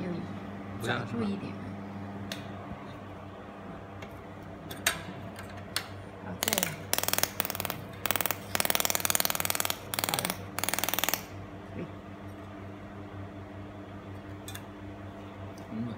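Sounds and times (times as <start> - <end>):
machine and chiller hum: 0.0 - 15.9
laser welder crackling buzz: 6.4 - 11.4.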